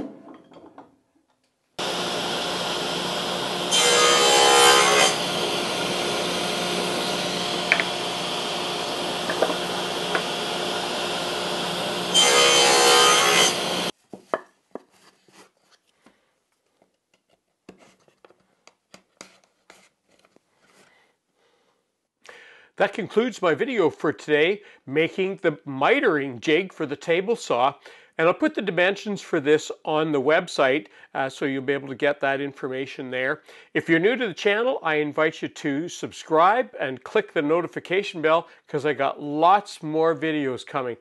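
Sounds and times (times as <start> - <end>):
table saw cutting wood: 1.8 - 13.9
wooden pieces tapping and rubbing: 7.7 - 7.9.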